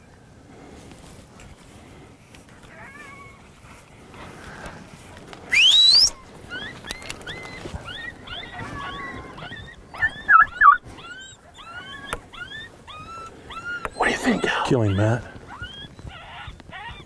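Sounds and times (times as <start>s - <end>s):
coyote yips and yelps: 2.7s - 3.4s, 5.5s - 17.0s
coyote howling: 5.5s - 17.0s.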